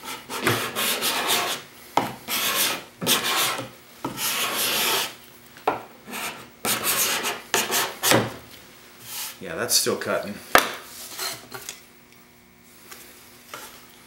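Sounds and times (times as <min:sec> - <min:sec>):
scraper rasping on wood: 0:00.0 - 0:01.6, 0:02.3 - 0:05.2, 0:06.1 - 0:08.2.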